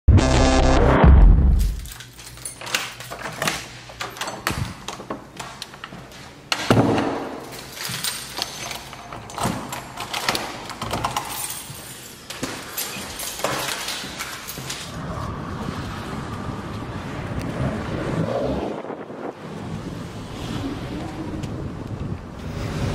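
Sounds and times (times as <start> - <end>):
light jangling: 1.6 - 4.7, 7.4 - 14.9.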